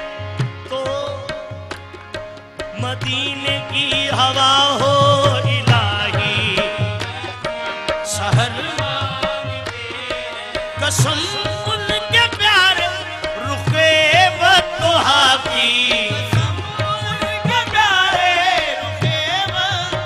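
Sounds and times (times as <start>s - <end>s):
harmonium chords: 0.0s - 20.0s
tabla strokes: 0.0s - 20.0s
ornamented lead vocal: 0.4s - 20.0s.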